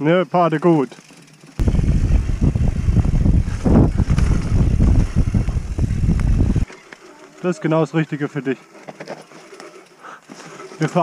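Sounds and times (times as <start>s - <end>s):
bike rumbling and rattling on dirt: 0.5s - 11.0s
wind buffeting microphone: 1.6s - 6.7s.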